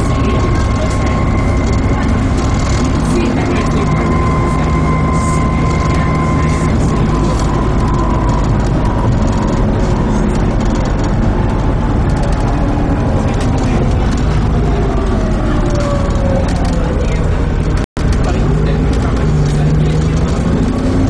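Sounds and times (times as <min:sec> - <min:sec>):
bus engine and driveline noise: 0:00.0 - 0:21.0
gearbox whine: 0:00.0 - 0:21.0.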